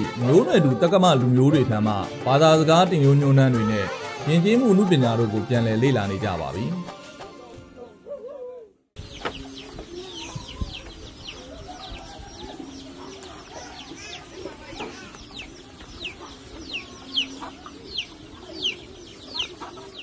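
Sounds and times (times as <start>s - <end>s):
birds chirping: 0.0s - 20.0s
wavering bird calls: 7.8s - 20.0s.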